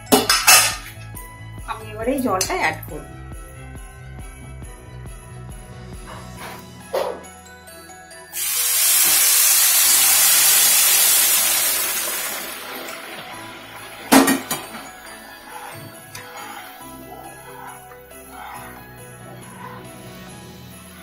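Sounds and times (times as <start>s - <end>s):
water hissing in hot pan: 8.4s - 15.6s.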